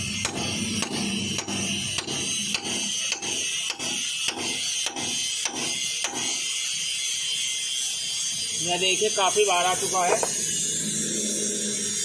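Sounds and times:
hammer striking steel pin: 0.2 - 6.4.

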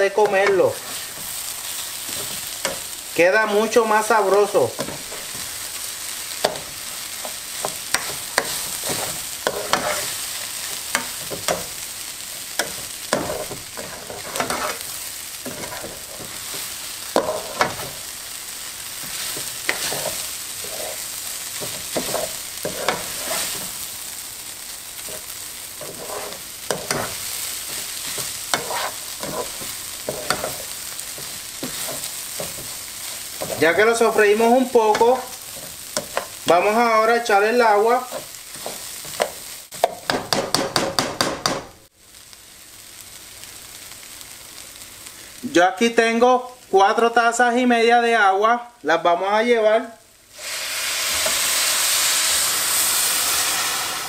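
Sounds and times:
rice sizzling in hot oil: 0.0 - 48.0, 50.0 - 54.0
utensil scraping pot: 7.2 - 10.2, 12.6 - 18.0, 19.0 - 23.8, 25.0 - 36.5.

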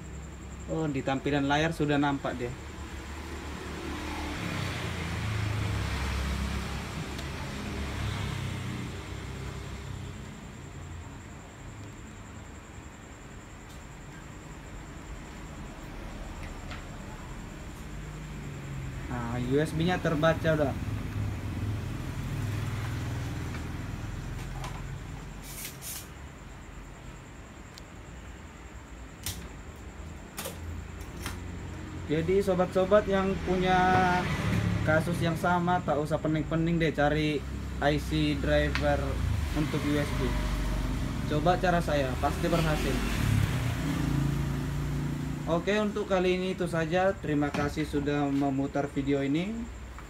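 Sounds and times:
short hissy bursts: 25.4 - 26.2.

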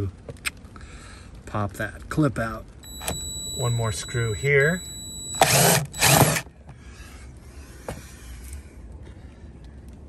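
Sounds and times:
cordless impact driver running: 5.4 - 6.5.

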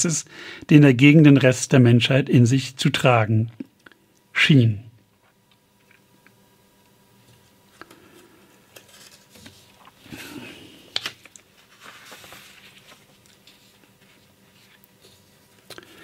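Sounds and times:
rustling near microphone: 11.0 - 16.0.

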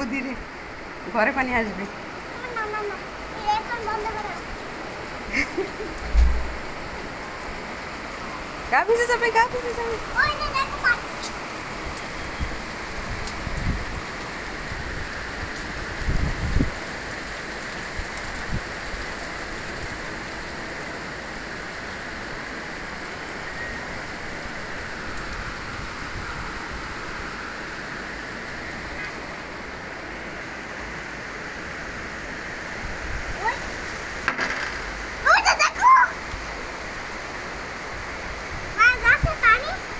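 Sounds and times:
steady rain pouring: 0.0 - 39.9
low thumps: 6.0 - 6.7.

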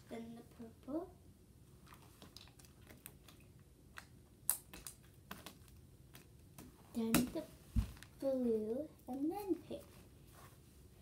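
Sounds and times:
slime squishing with clicks and pops: 1.9 - 7.4.

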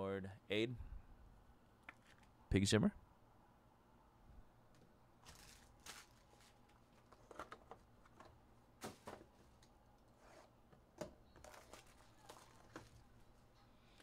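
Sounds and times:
cardboard boxes rustling: 5.2 - 9.6.

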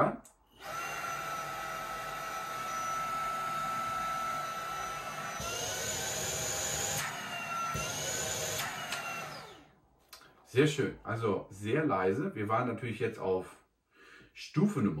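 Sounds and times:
handheld vacuum motor whining: 0.5 - 9.7.

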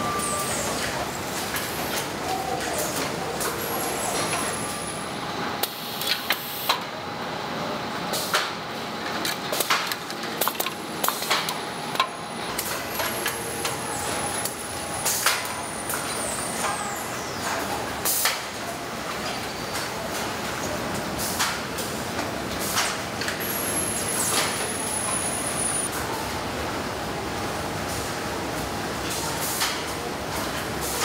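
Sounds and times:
machinery hum: 0.0 - 29.4
high whine falling in pitch: 23.4 - 25.9.

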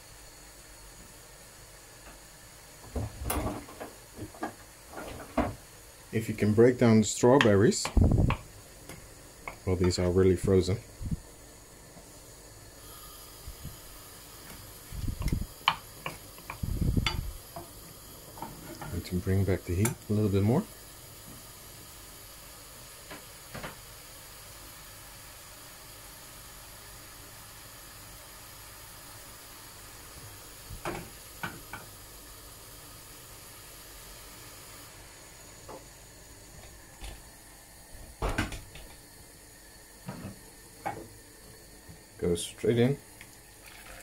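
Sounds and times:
saucepan simmering hiss: 0.0 - 44.0.

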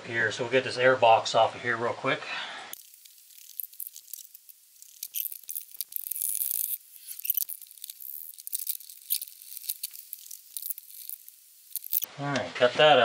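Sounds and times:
hand tools clicking and scraping: 2.8 - 12.1.

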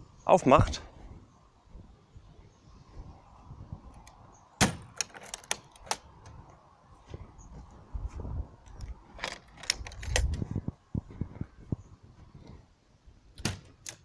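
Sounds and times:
metallic clamp clicks: 8.7 - 10.4, 13.4 - 14.0.

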